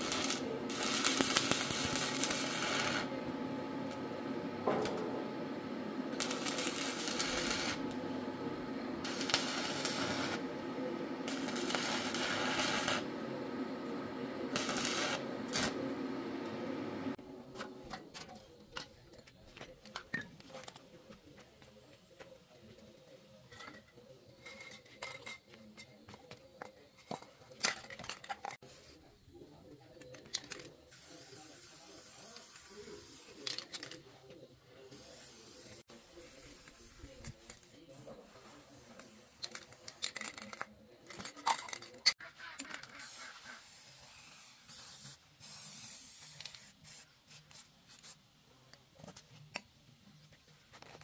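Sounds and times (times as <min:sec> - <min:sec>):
welding arc crackling and hissing: 0:00.0 - 0:17.2, 0:30.9 - 0:33.8, 0:34.8 - 0:40.5, 0:42.7 - 0:48.1
steady hum: 0:00.0 - 0:17.6.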